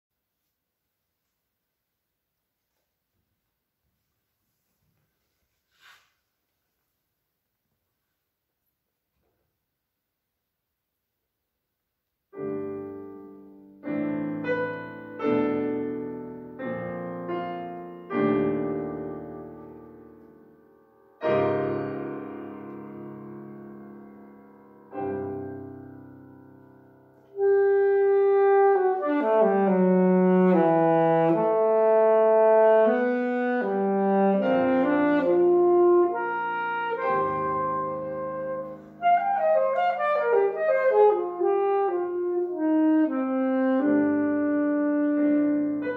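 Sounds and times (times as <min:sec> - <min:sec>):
grand piano chords: 0:12.3 - 0:45.9
saxophone melody: 0:27.2 - 0:45.9.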